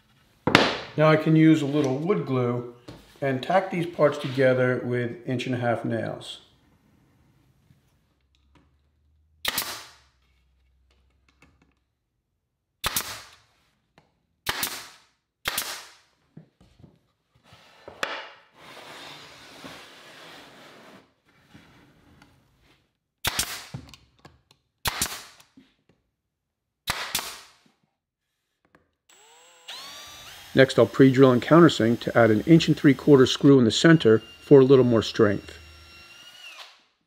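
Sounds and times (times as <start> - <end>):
pneumatic nailer firing: 9.4 - 10.0, 12.8 - 13.4, 14.4 - 16.0, 23.2 - 23.7, 24.8 - 25.4, 26.9 - 27.5.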